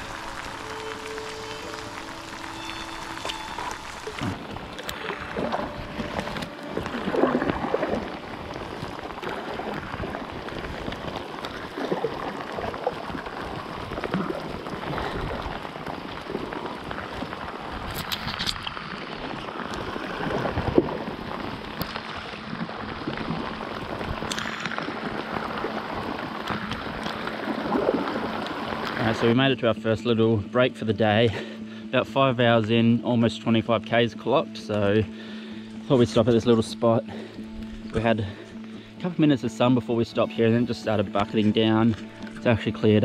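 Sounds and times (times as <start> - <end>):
paddle strokes splashing in water: 0.0 - 29.3
steady water hiss: 0.0 - 29.5.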